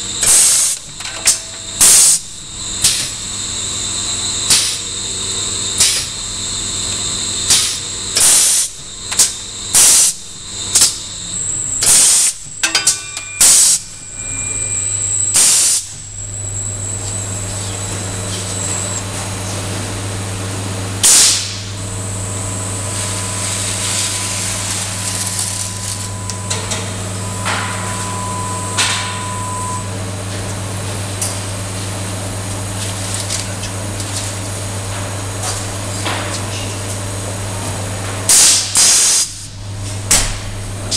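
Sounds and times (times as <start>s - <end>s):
machine drive humming: 0.0s - 36.1s
pneumatic air hisses: 0.2s - 0.8s, 1.8s - 2.2s, 2.8s - 3.2s, 4.5s - 4.9s, 5.8s - 6.2s, 7.5s - 11.0s, 11.8s - 12.5s, 15.3s - 16.0s, 21.0s - 21.7s, 38.3s - 39.6s.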